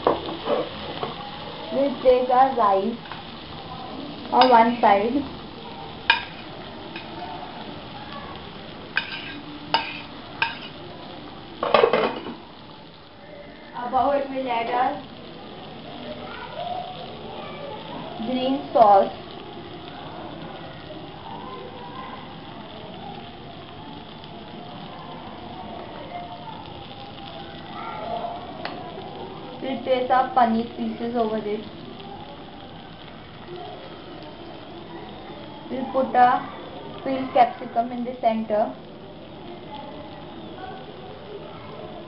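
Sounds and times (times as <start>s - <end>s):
food sizzling on hot plate: 0.0s - 42.0s
spoon clinking on ceramic plate: 9.0s - 10.7s.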